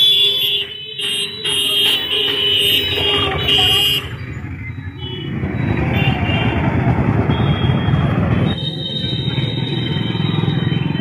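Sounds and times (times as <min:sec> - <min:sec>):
vehicle horn blasts: 0:00.0 - 0:04.2
street traffic noise: 0:00.0 - 0:11.0.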